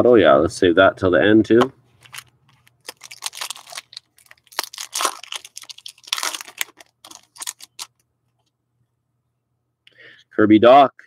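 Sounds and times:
foil packs crinkling: 0:02.0 - 0:08.0.

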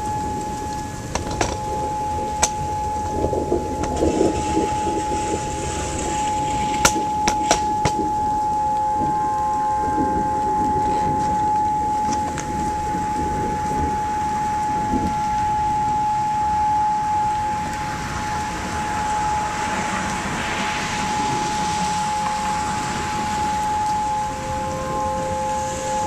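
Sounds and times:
rainfall hissing: 0:00.0 - 0:26.0
warning siren steady tone: 0:00.0 - 0:26.0.

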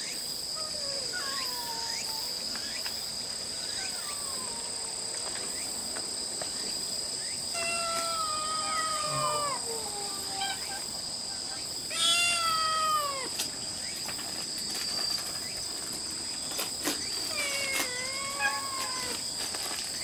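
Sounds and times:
high-pitched insect chorus: 0:00.0 - 0:20.0
kittens meowing: 0:00.6 - 0:02.3, 0:07.5 - 0:13.4, 0:17.3 - 0:19.2.

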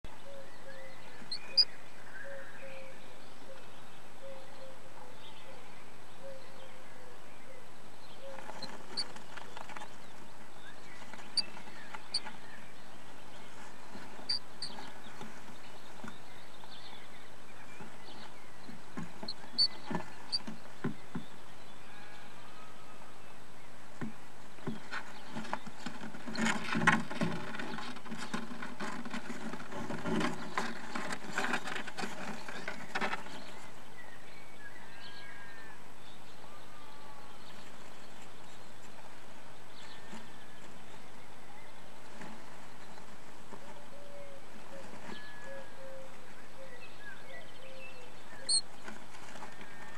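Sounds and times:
birds scrabbling in nest box: 0:08.3 - 0:12.5, 0:13.3 - 0:16.9, 0:17.7 - 0:21.3, 0:24.6 - 0:33.8.

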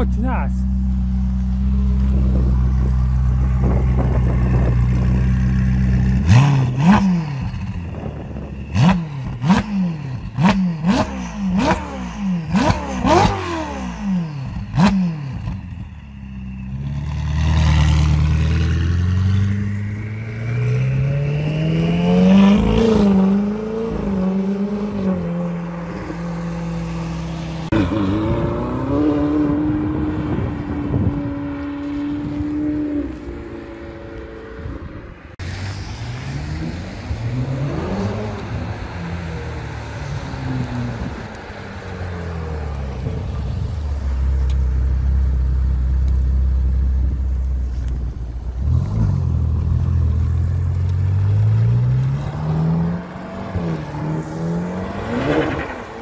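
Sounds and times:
car engine revving: 0:00.6 - 0:15.7, 0:16.3 - 0:56.0
car accelerating away: 0:17.0 - 0:34.2, 0:48.5 - 0:56.0.

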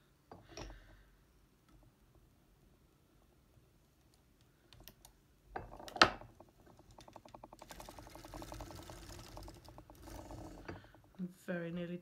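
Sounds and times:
sock machine clicking when cranked: 0:04.7 - 0:11.3.

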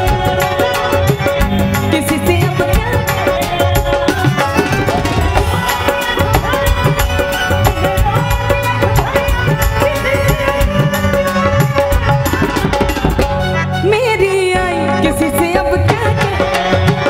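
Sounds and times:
hand drum rhythm: 0:00.0 - 0:13.6, 0:14.6 - 0:17.0
harmonium melody: 0:00.0 - 0:17.0.

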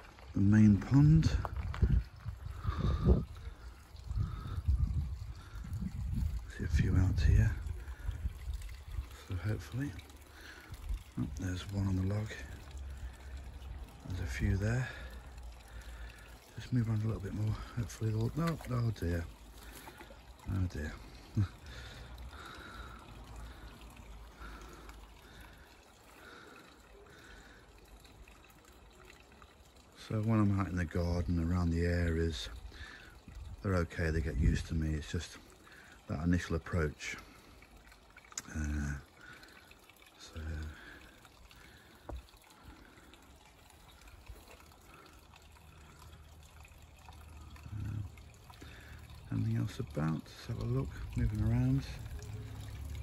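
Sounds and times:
faint trickling water: 0:00.0 - 0:53.0
low rumble on microphone: 0:00.4 - 0:09.2.

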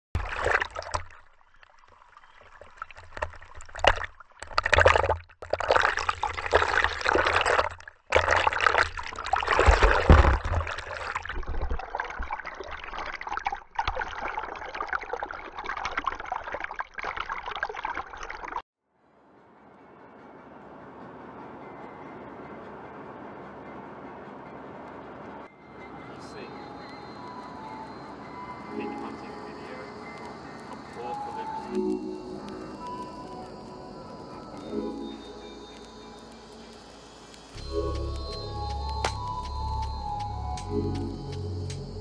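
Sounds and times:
water sloshing and gurgling: 0:00.2 - 0:18.6.

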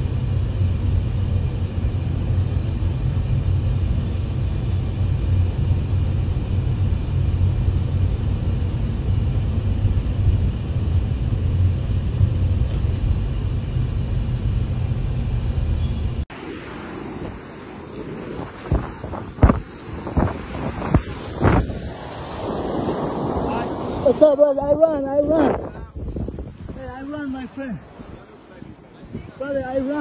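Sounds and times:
vehicle engine and road noise: 0:00.0 - 0:16.4.

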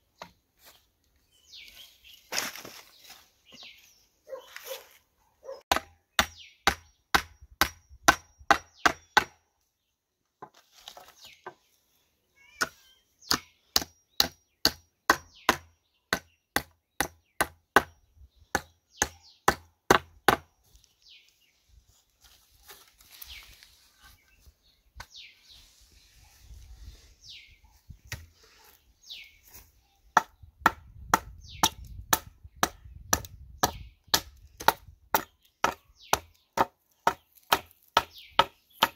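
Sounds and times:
axe chopping wooden post: 0:05.7 - 0:09.4, 0:13.3 - 0:20.5, 0:30.2 - 0:38.9
hammer striking wooden board: 0:05.7 - 0:09.4.

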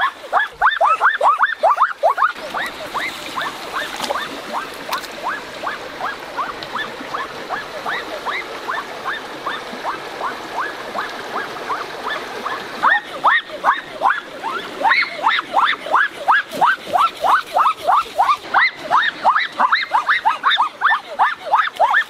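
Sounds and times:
animal chirping calls: 0:00.0 - 0:04.3
stream water rushing: 0:00.0 - 0:22.0.

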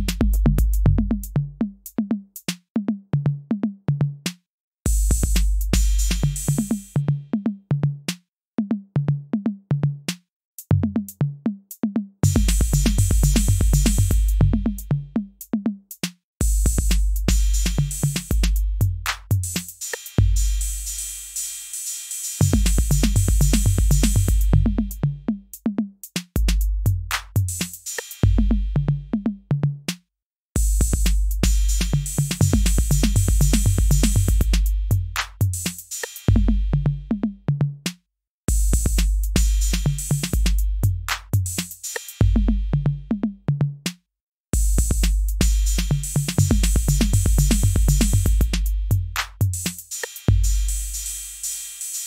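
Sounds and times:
electronic drum machine beat: 0:00.0 - 0:02.0, 0:04.9 - 0:08.1, 0:12.2 - 0:15.4, 0:16.4 - 0:25.7, 0:26.4 - 0:29.8, 0:30.6 - 0:37.8, 0:38.5 - 0:43.8, 0:44.6 - 0:52.0.

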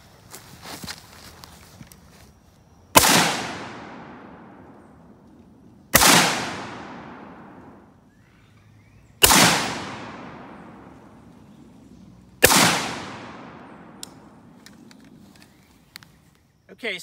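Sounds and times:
rifle shots echoing: 0:03.0 - 0:05.2, 0:05.9 - 0:07.9, 0:09.2 - 0:11.4, 0:12.4 - 0:14.9.

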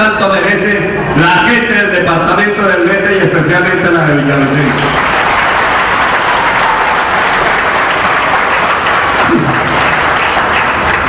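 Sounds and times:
crowd applauding: 0:04.1 - 0:11.0.

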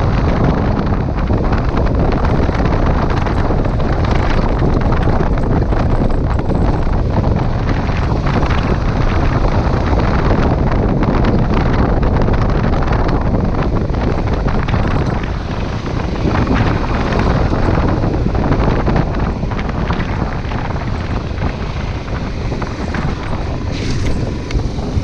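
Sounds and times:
motorcycle engine running: 0:00.0 - 0:25.0
wind buffeting microphone: 0:00.0 - 0:25.0.

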